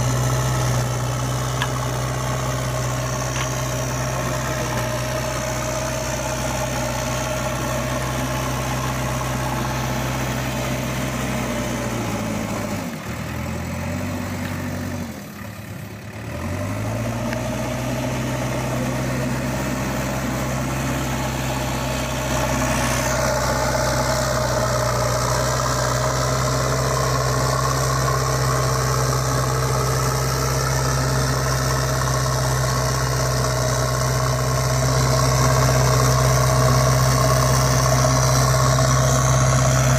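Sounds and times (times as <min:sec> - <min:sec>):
engine idling hum: 0:00.0 - 0:39.9.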